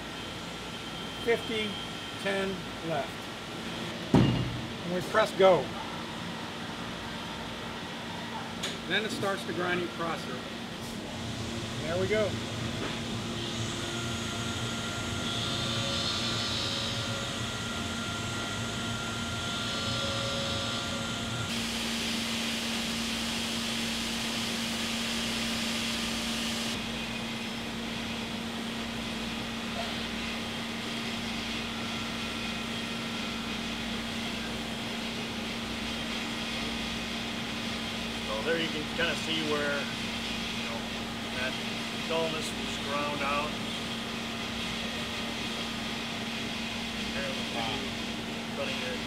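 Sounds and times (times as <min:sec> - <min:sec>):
grinding machine hum: 0:10.5 - 0:49.0
grinding whir: 0:11.0 - 0:26.8.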